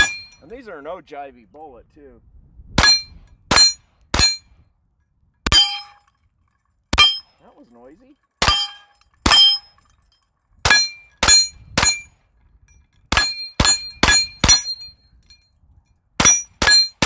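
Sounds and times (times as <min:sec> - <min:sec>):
steel plate target ringing: 0:00.0 - 0:00.5, 0:02.8 - 0:04.6, 0:05.5 - 0:06.2, 0:07.0 - 0:07.4, 0:08.4 - 0:12.2, 0:13.1 - 0:15.4, 0:16.2 - 0:17.0.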